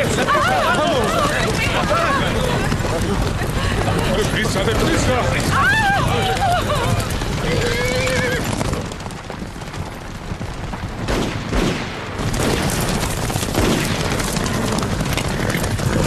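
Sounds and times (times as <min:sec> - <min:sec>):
horses galloping: 0:00.0 - 0:16.0
gunshots: 0:11.0 - 0:16.0.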